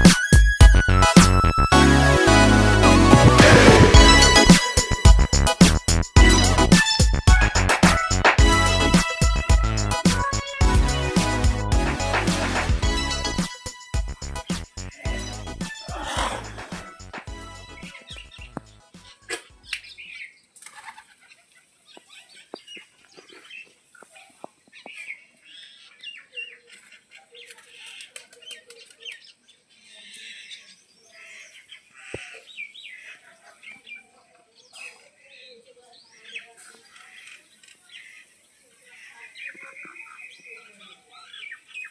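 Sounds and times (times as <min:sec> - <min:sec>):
background music: 0:00.0 - 0:19.7
birds chirping: 0:13.0 - 0:41.9.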